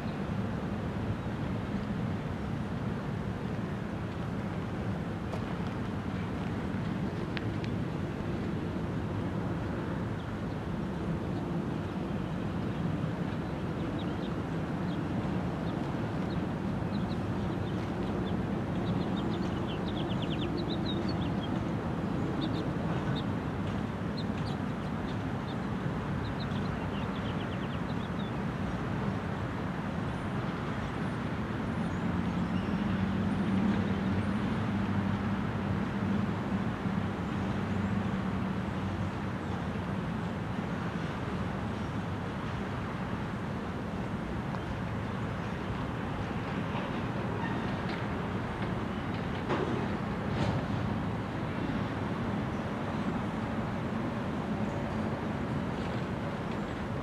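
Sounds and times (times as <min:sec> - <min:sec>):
birds chirping: 0:13.4 - 0:23.3.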